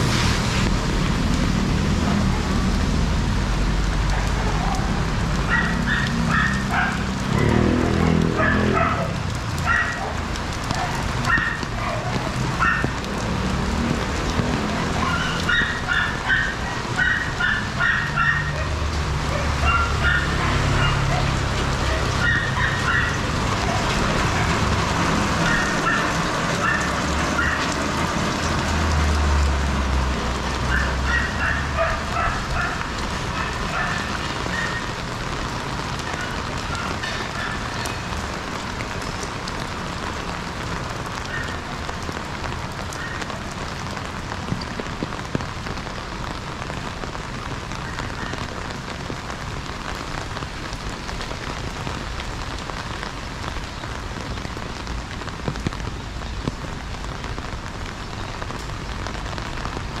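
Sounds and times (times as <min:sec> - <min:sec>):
rain pattering on street: 0:00.0 - 1:00.0.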